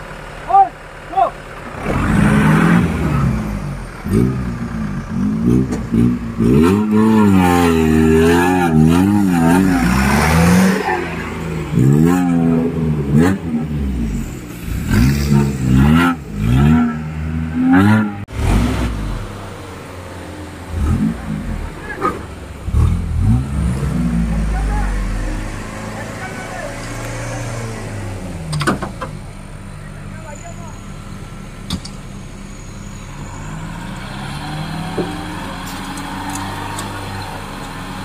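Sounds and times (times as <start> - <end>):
jeep engine revving: 0.0 - 38.0.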